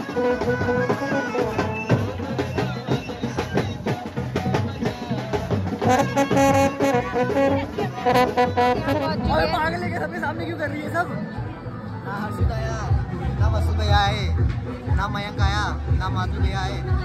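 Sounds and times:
fast steady drumming: 0.0 - 9.9
brass horns playing a melody: 5.8 - 9.4.

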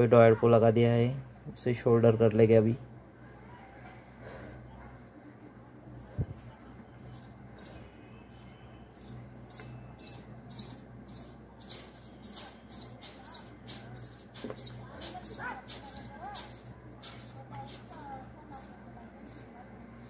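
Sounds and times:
low steady hum: 0.0 - 20.0
small bird chirping: 5.9 - 20.0.

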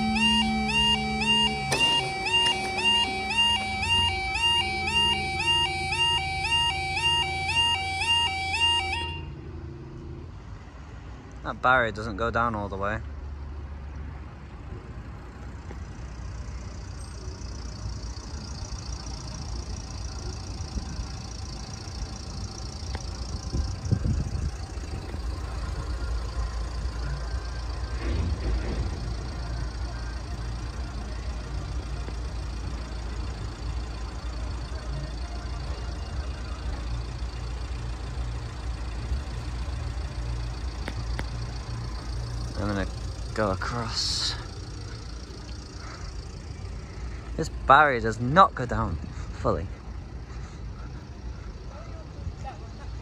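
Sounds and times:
high-pitched warbling tone: 0.0 - 7.0
diesel engines idling: 0.0 - 53.0.

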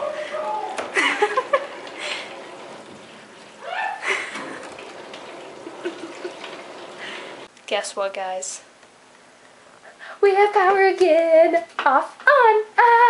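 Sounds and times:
water rushing through pipes: 0.0 - 7.5.

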